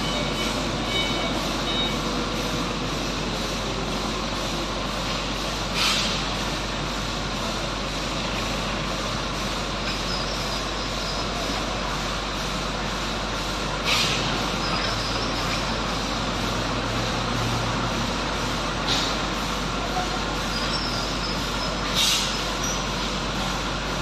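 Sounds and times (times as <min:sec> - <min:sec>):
industrial machinery din: 0:00.0 - 0:24.0
compressed air hissing: 0:05.7 - 0:06.4, 0:13.8 - 0:14.4, 0:21.9 - 0:22.5.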